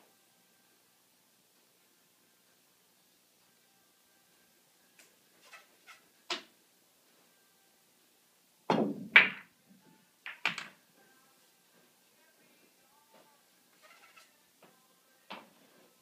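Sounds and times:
pool balls clacking: 8.7s - 9.6s, 10.2s - 10.8s.

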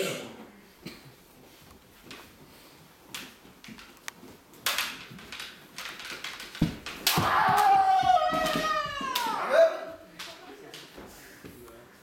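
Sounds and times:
bamboo swords knocking together: 4.6s - 9.4s
foot stamp on wooden floor: 6.6s - 9.2s
loud shout: 7.1s - 9.9s.

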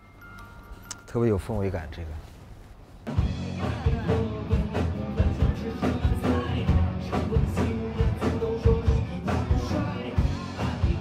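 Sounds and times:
bass line: 3.1s - 11.0s
drum kit beat: 3.1s - 11.0s
live rock band: 3.1s - 11.0s.

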